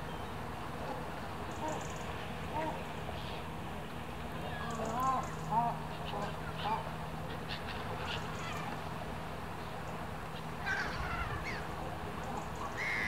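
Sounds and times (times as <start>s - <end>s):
gulls calling: 4.4s - 9.0s, 9.6s - 13.0s.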